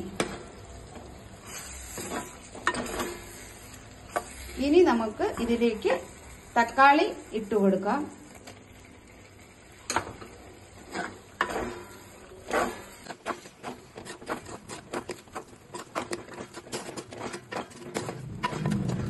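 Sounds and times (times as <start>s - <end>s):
spatula scraping clay pot: 10.8s - 19.0s.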